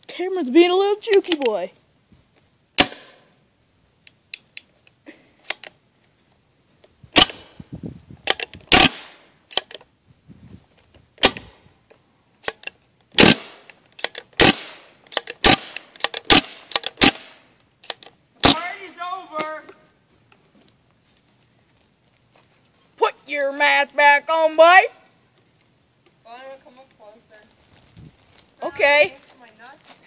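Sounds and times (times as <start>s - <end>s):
paintball marker firing shots: 2.8s - 3.3s, 8.3s - 9.2s, 11.2s - 11.5s, 13.2s - 13.7s, 14.4s - 17.4s, 18.4s - 18.7s.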